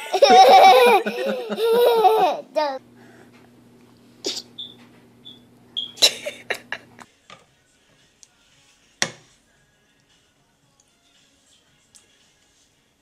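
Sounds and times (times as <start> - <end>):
steady low hum: 0.0 - 7.0.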